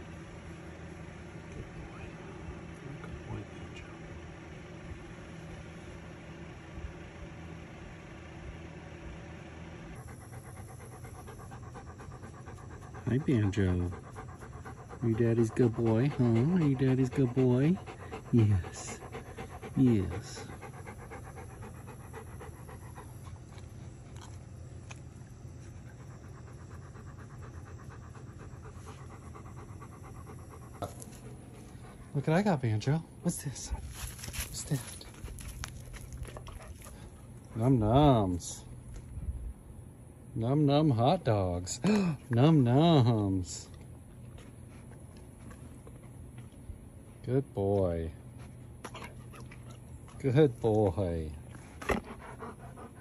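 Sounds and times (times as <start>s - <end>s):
low mechanical hum: 0.0s - 53.0s
dog panting: 9.9s - 38.8s, 40.8s - 53.0s.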